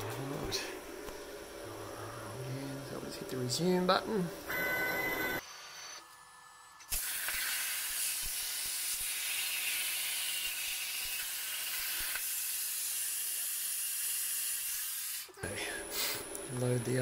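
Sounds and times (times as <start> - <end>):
plasma cutter loud steady hiss: 6.8 - 15.3
air hissing through torch: 6.8 - 16.4.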